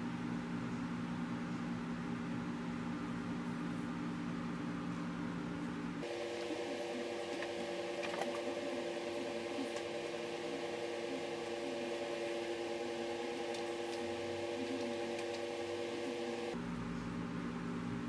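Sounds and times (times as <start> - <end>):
steady multi-tone hum: 0.0 - 18.0.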